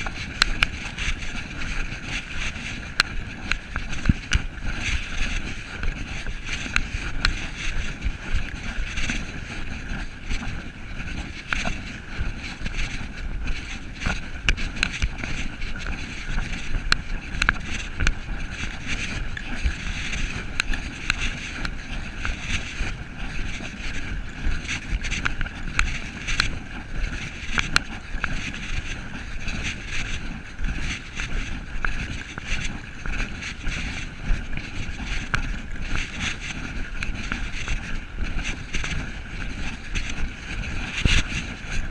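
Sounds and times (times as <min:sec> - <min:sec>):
fabric rubbing on microphone: 0:00.0 - 0:41.9
footsteps through brush and snow: 0:00.0 - 0:41.9
wind on microphone: 0:00.0 - 0:41.9.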